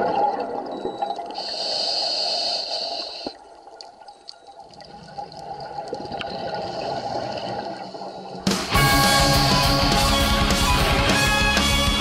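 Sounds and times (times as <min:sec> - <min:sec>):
exhaled bubbles underwater: 0:00.0 - 0:01.5, 0:03.1 - 0:08.4
underwater water noise: 0:00.0 - 0:08.5
sharp clicks underwater: 0:03.1 - 0:06.5.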